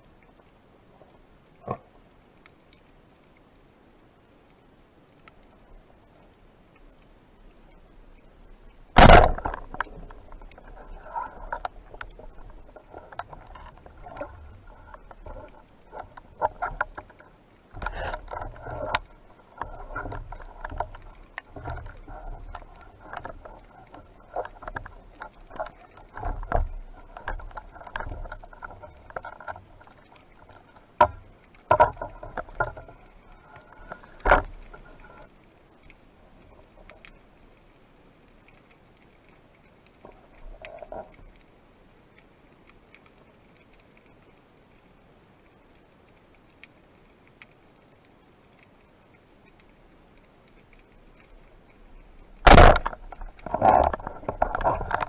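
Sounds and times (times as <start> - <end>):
low water rumbling: 0.0 - 42.6, 47.1 - 55.0
underwater gear clicks and scrapes: 5.1 - 55.0.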